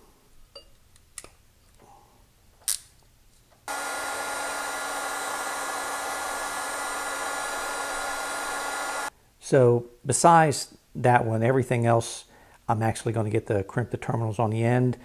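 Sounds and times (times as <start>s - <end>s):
heat gun fan whining: 3.7s - 9.1s.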